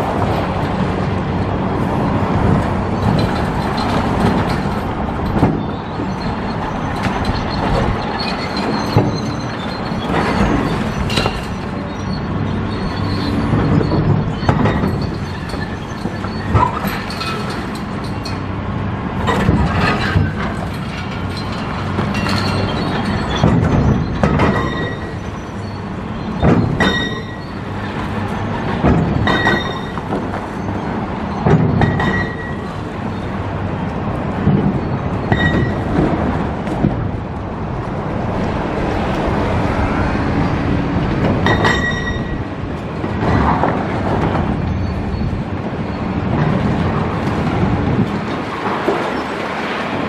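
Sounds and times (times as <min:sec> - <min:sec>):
traffic and machinery rumble: 0:00.0 - 0:50.0
ringing metal clanks: 0:12.8 - 0:18.4, 0:19.2 - 0:28.0, 0:28.8 - 0:33.2, 0:34.8 - 0:35.9, 0:41.4 - 0:42.5.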